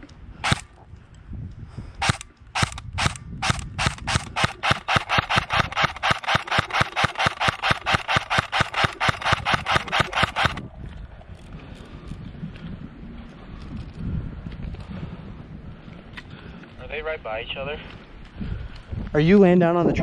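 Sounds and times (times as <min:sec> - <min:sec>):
airsoft gun shots: 0:00.4 - 0:00.7, 0:02.0 - 0:10.6.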